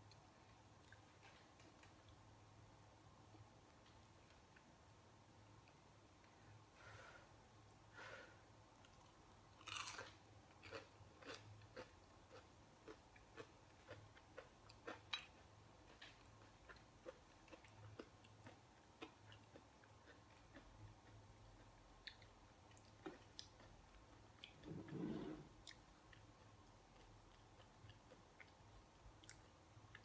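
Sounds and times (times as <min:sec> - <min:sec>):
chewing with light crunches: 0:08.8 - 0:30.0.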